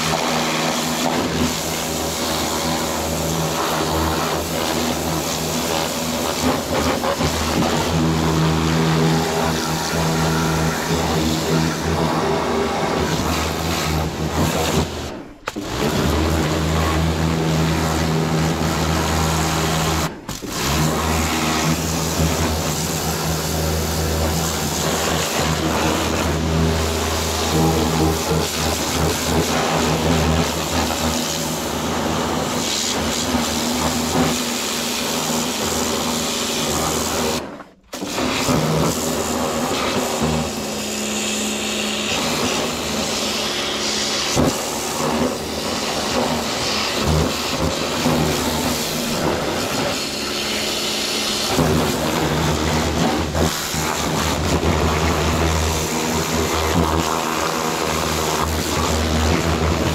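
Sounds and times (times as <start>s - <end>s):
water jet hissing: 0.0s - 15.6s
pressure washer motor hum: 0.0s - 59.9s.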